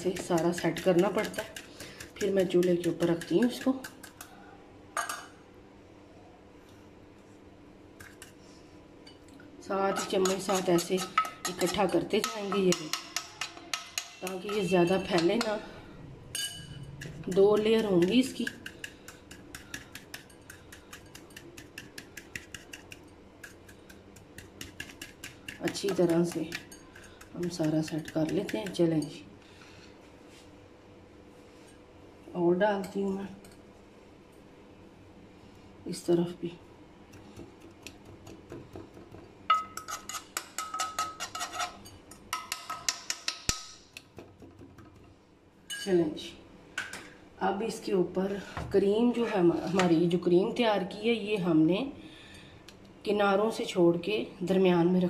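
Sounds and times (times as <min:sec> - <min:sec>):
metal spoon clinking on pan: 0:05.0 - 0:05.3, 0:09.9 - 0:15.5, 0:16.4 - 0:17.1, 0:39.5 - 0:43.7, 0:45.7 - 0:45.9.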